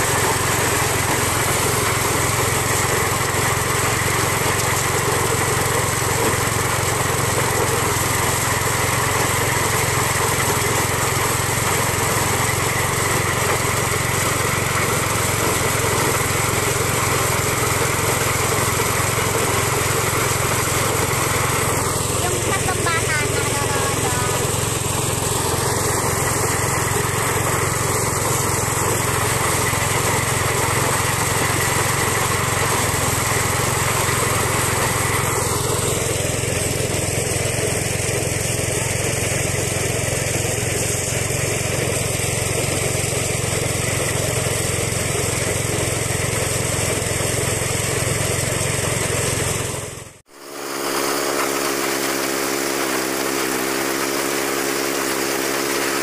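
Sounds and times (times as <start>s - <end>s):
engine running: 0.0s - 56.0s
engine humming: 7.1s - 37.7s.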